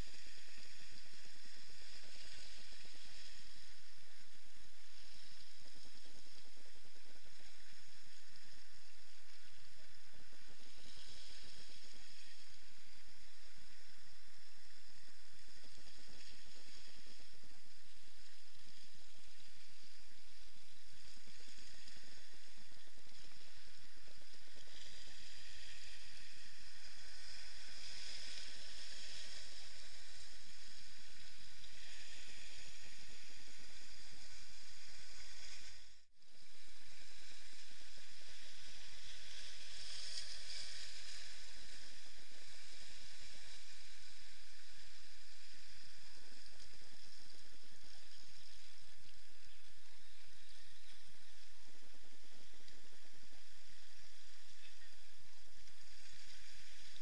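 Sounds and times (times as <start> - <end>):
muffled sea water washing on rocks: 0.0 - 57.0.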